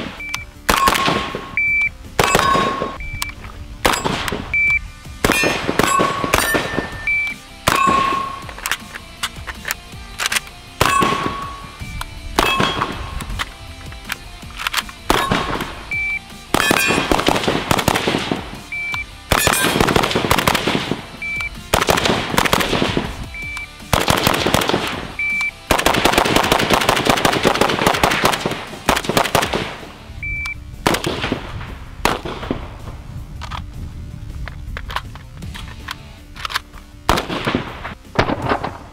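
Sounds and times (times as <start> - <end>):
rifle firing fast strings: 0.0 - 1.6, 2.2 - 3.0, 3.8 - 4.5, 5.2 - 30.0, 30.8 - 33.7, 34.7 - 38.9
background music: 0.0 - 38.9.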